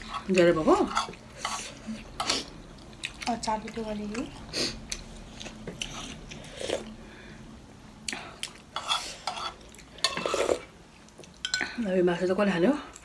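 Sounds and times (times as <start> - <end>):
spoons clinking on bowls: 8.8 - 10.5, 11.4 - 11.8.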